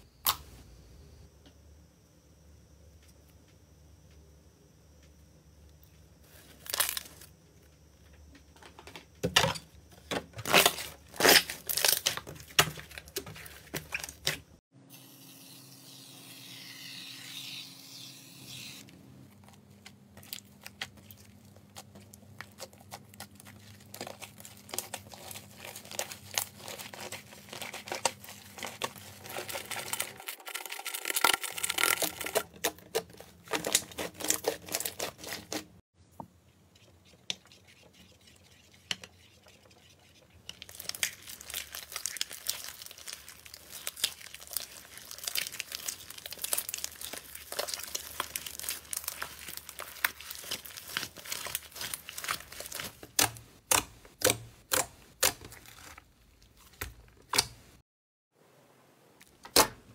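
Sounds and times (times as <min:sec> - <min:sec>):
slime crackling and tearing: 0:10.5 - 0:14.4, 0:20.2 - 0:35.7, 0:40.6 - 0:57.5
slime popping and squelching: 0:40.5 - 0:56.0.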